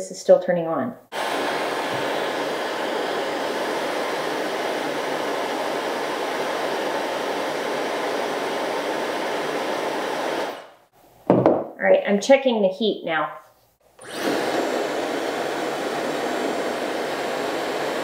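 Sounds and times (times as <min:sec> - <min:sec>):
hair dryer blowing air: 0:01.1 - 0:10.9, 0:13.9 - 0:18.0.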